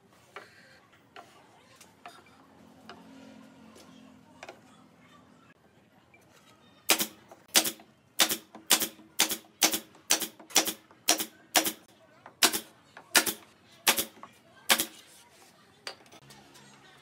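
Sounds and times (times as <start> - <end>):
nail gun shots into wood: 6.9 - 11.8, 12.4 - 14.1.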